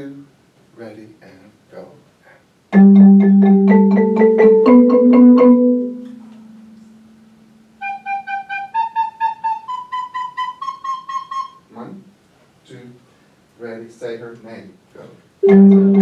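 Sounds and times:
xylophones struck with mallets: 0:02.8 - 0:06.8, 0:15.4 - 0:16.0
recorder playing: 0:02.8 - 0:07.0, 0:07.8 - 0:11.7, 0:15.4 - 0:16.0.

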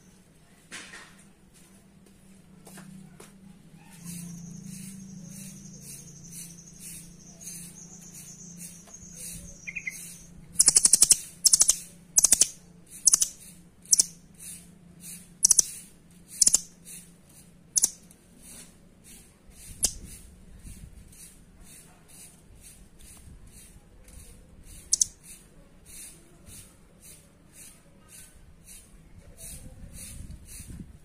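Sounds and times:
nuthatch high calls and trills: 0:03.8 - 0:17.1.

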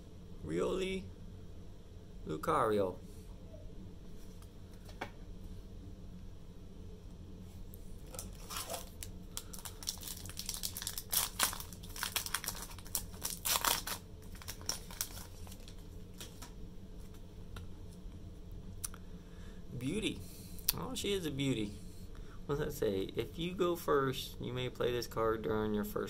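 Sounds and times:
foil wrapper crinkling and tearing: 0:08.1 - 0:16.5.

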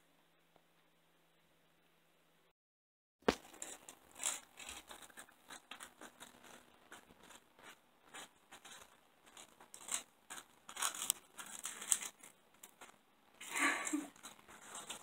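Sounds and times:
cat chewing crunchy food: 0:03.4 - 0:13.5, 0:14.1 - 0:15.0.

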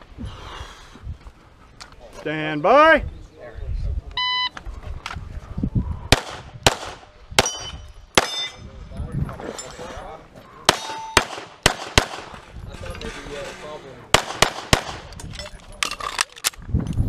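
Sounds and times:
pistol shots: 0:06.1 - 0:08.6, 0:10.7 - 0:12.4, 0:14.1 - 0:15.1.

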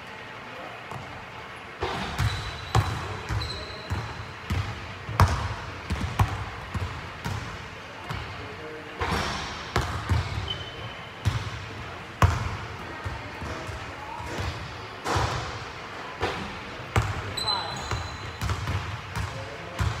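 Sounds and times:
basketball hitting rim: 0:01.8 - 0:07.5, 0:09.0 - 0:10.6, 0:11.2 - 0:11.6, 0:12.2 - 0:12.6, 0:16.2 - 0:20.0
basketball bouncing on wooden floor: 0:02.0 - 0:07.4, 0:09.8 - 0:10.4.

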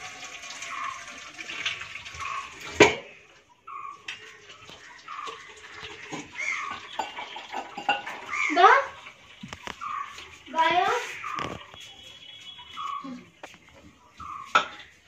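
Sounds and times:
steel pots clanking: 0:00.0 - 0:15.0
water running and splashing: 0:00.0 - 0:15.0
chirping call: 0:10.8 - 0:13.4.

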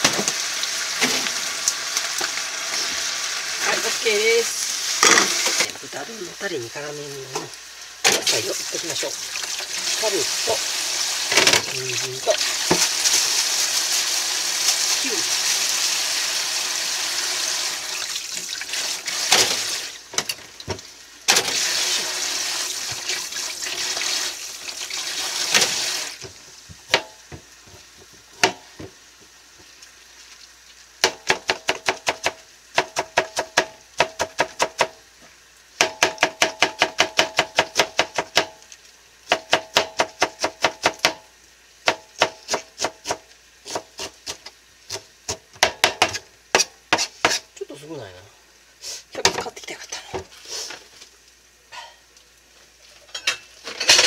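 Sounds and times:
tap water running into sink: 0:07.3 - 0:30.4
knife chopping cabbage on board: 0:31.0 - 0:35.0, 0:35.8 - 0:38.6, 0:39.3 - 0:41.2, 0:41.8 - 0:47.4.

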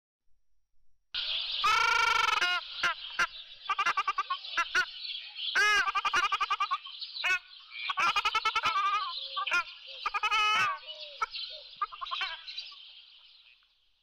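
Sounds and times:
ducks honking: 0:01.6 - 0:12.5.

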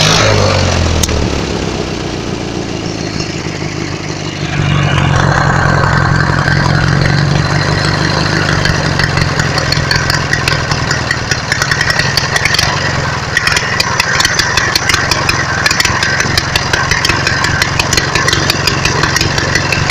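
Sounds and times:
lawn mower engine idling: 0:00.0 - 0:19.9
rapid irregular clicks: 0:04.9 - 0:19.9.

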